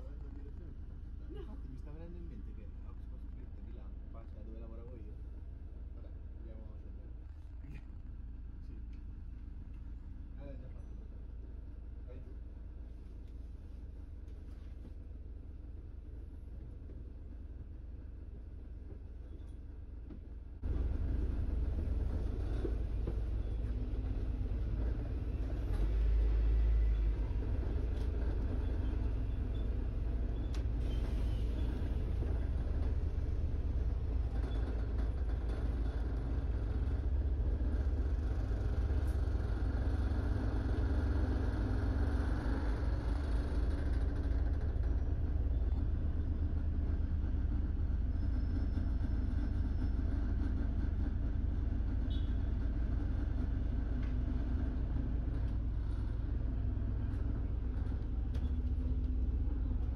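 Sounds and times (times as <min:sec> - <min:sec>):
bus engine and road rumble: 0:00.0 - 0:59.9.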